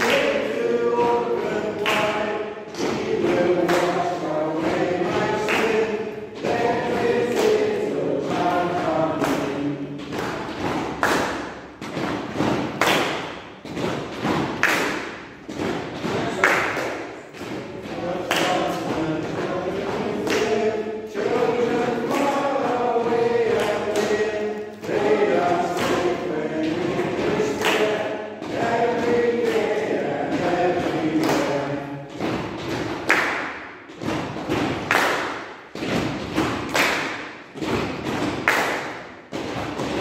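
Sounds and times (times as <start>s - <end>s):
group of people singing: 0.0s - 11.4s, 14.6s - 33.6s.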